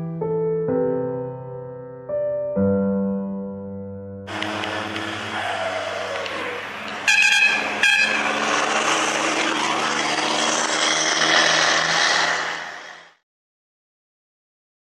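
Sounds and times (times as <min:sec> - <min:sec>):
truck engine and road noise: 0:04.3 - 0:13.2
truck air horn blasts: 0:06.7 - 0:09.0.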